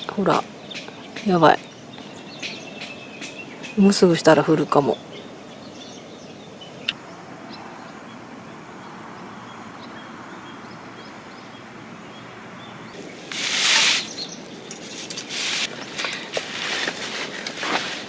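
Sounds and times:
bird chirps: 0.0 - 16.2
loud rustling scrape: 13.2 - 18.0.

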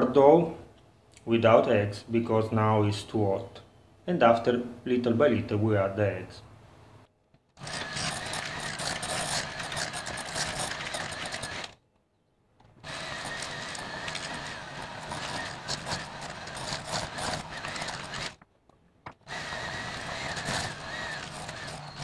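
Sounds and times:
electric hand mixer running: 7.6 - 11.8, 12.8 - 18.4, 19.3 - 22.0.

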